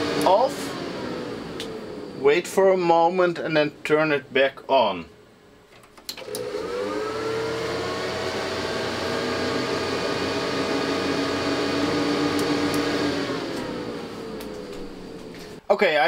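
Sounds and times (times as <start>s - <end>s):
server cooling fans whirring: 0.0s - 16.0s.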